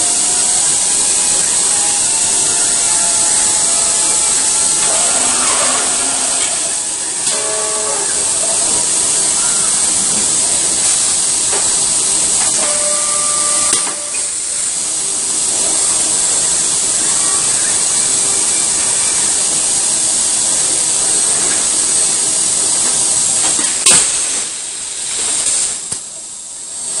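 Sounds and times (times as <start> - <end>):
robots whining: 0.0 - 19.7
loud steady hiss: 0.0 - 27.0.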